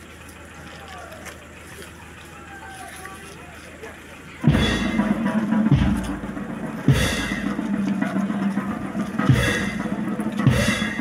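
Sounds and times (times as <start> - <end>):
heavy drum beats: 4.4 - 11.0.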